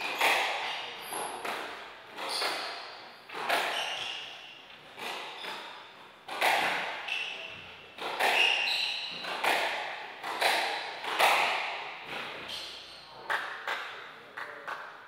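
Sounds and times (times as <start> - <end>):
squash ball hits echoing: 0.0 - 12.7
shoes squeaking on wooden floor: 2.2 - 5.9, 7.1 - 9.4.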